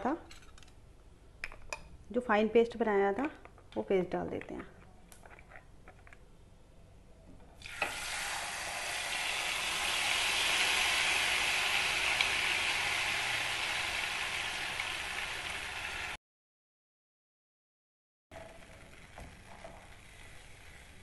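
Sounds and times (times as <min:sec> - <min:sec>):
paste sizzling in hot oil: 0:07.6 - 0:16.2.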